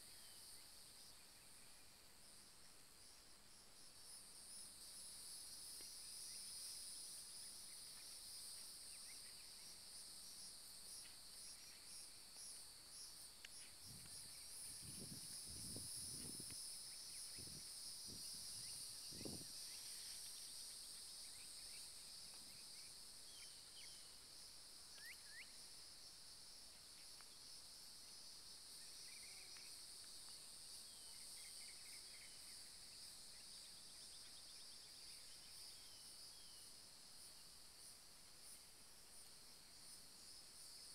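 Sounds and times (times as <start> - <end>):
insects chirring: 0.0 - 40.9.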